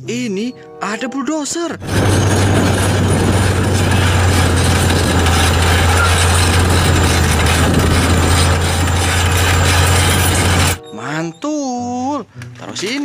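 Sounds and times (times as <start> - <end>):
bulldozer diesel engine drone: 1.8 - 10.8
rumble of pushed rock: 1.8 - 10.8.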